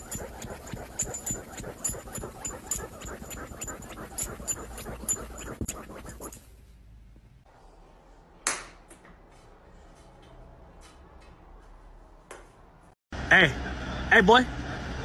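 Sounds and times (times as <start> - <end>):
dog claws scratching upholstery: 0.0 - 6.5.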